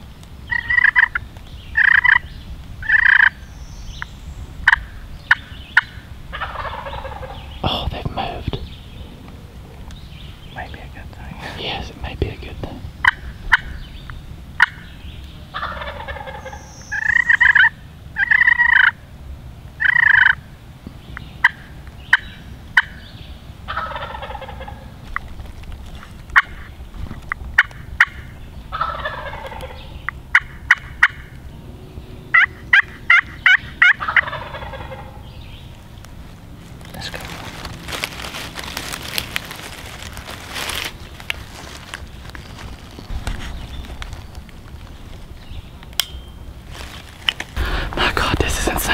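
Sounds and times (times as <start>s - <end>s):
turkeys gobbling: 0.5s - 1.2s, 1.8s - 3.4s, 4.6s - 10.0s, 13.0s - 14.0s, 14.6s - 14.9s, 15.5s - 19.0s, 19.8s - 20.4s, 21.4s - 23.0s, 23.7s - 25.3s, 26.3s - 26.7s, 27.5s - 31.4s, 32.3s - 35.4s.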